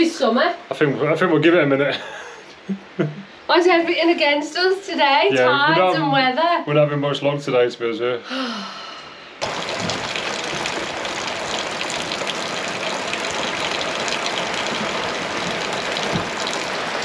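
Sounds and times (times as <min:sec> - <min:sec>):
heavy rain on a roof: 0:09.4 - 0:17.0
water pouring from drains: 0:09.4 - 0:17.0.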